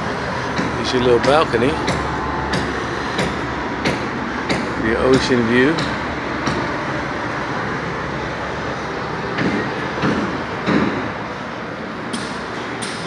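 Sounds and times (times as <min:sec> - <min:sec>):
city traffic noise: 0:00.0 - 0:13.0.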